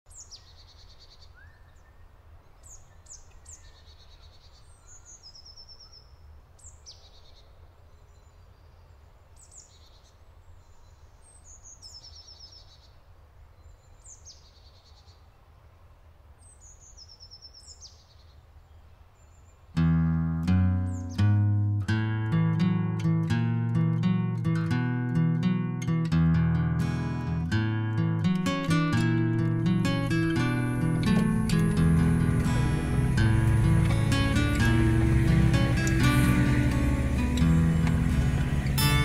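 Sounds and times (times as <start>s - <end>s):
songbirds singing trills: 0.1s - 15.8s, 16.4s - 24.8s, 27.4s - 39.0s
steady low hum: 28.3s - 39.0s.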